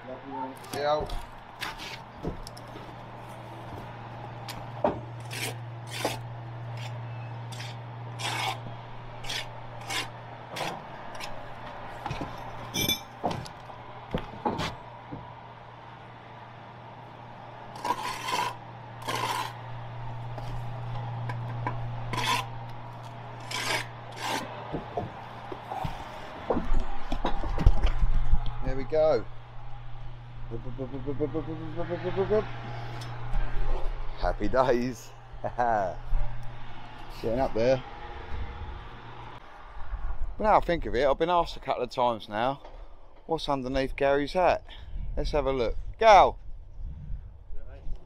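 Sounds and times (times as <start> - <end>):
trowel scraping on brick: 1.6 - 2.1, 5.2 - 11.4, 17.8 - 19.6, 22.1 - 24.6.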